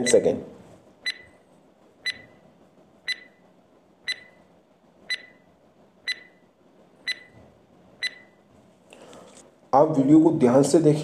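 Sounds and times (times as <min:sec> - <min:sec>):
ticking countdown beeps: 0:01.0 - 0:01.4, 0:02.0 - 0:02.4, 0:03.1 - 0:03.4, 0:04.1 - 0:04.4, 0:05.1 - 0:05.4, 0:06.1 - 0:06.4, 0:07.0 - 0:07.4, 0:08.0 - 0:08.3.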